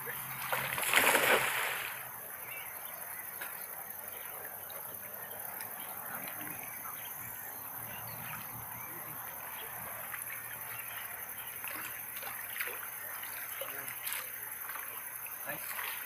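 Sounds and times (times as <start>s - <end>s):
net splashing into water: 0.4s - 2.0s.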